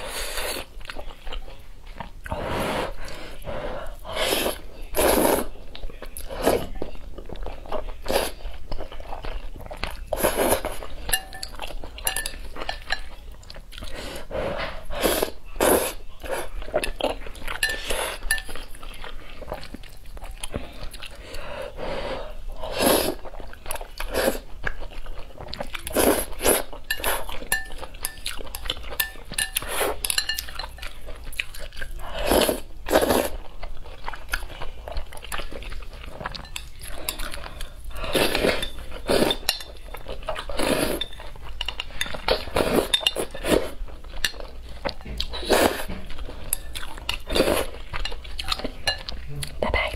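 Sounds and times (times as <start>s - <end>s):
chopsticks clinking on glass bowl: 10.9s - 13.2s, 16.8s - 18.8s, 26.9s - 31.2s, 36.3s - 37.4s, 38.4s - 40.1s, 40.8s - 45.3s, 46.3s - 49.2s.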